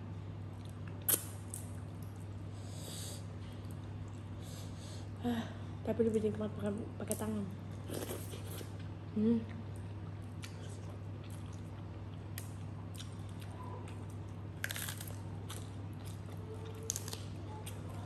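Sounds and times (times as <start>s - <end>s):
chewing: 9.7s - 18.0s.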